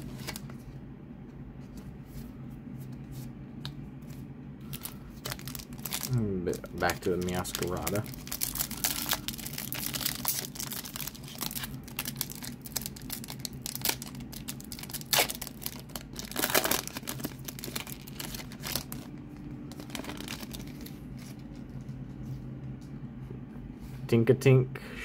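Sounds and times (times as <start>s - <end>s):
cards rustling: 4.0s - 19.1s
foil wrapper crinkling and ripping: 4.7s - 21.5s.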